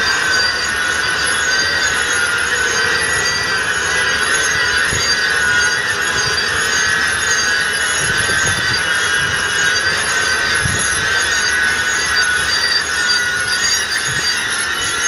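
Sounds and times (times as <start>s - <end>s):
high wavering squeal: 0.0s - 15.0s.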